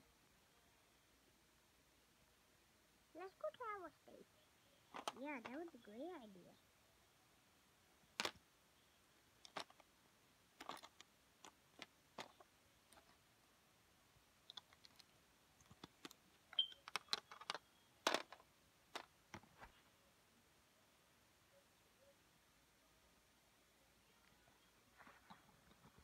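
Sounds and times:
plastic bricks clicking: 0:08.2 - 0:08.4, 0:09.4 - 0:09.8, 0:10.6 - 0:13.1, 0:14.5 - 0:19.1.

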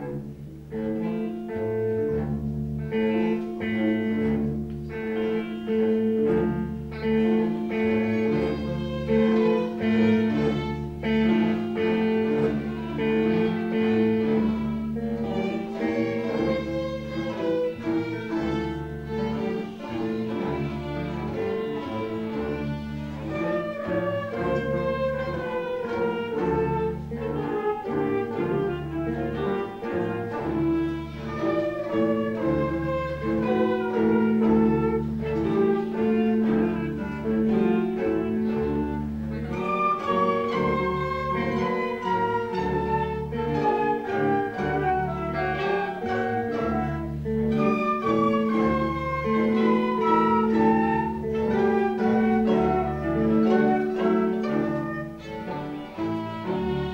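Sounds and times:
orchestra playing: 0:00.0 - 0:56.9.

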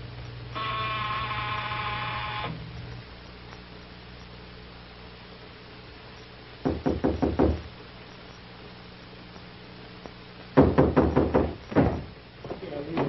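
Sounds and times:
knuckles rapping on door: 0:06.6 - 0:07.7, 0:10.6 - 0:13.0.

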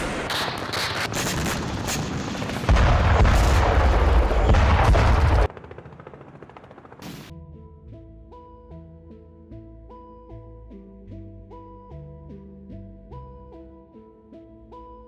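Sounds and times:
rapid crackling gunfire: 0:00.0 - 0:05.5
deep rumble of burning helicopter: 0:00.0 - 0:07.3.

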